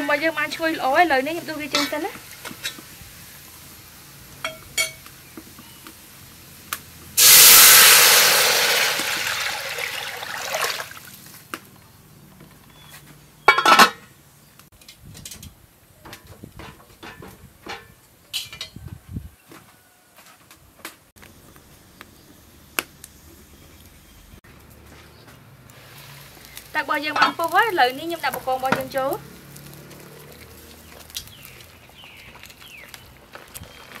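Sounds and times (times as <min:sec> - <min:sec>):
water hissing in hot oil: 0:00.0 - 0:11.6, 0:25.7 - 0:34.0.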